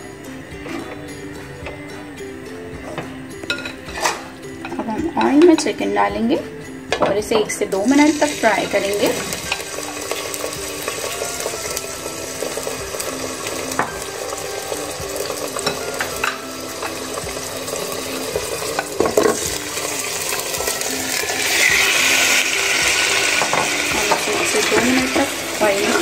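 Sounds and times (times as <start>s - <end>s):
chicken sizzling in hot oil: 7.7s - 26.0s.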